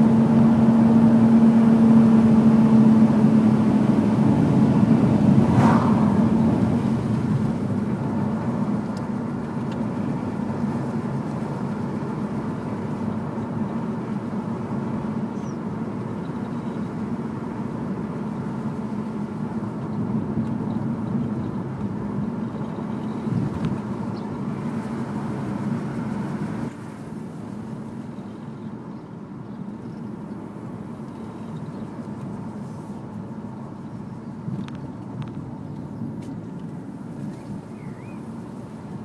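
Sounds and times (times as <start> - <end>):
tyre and road noise: 0.0 - 28.1, 29.6 - 39.0
car engine drone: 0.0 - 39.0.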